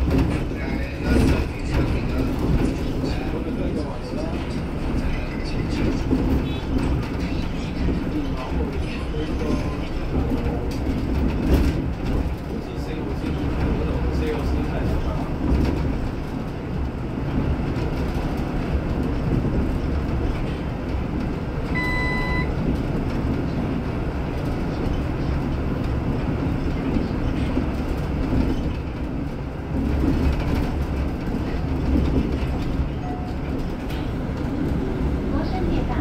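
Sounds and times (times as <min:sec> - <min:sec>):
bus rumble and road noise: 0:00.0 - 0:36.0
short electronic beep: 0:21.8 - 0:22.5.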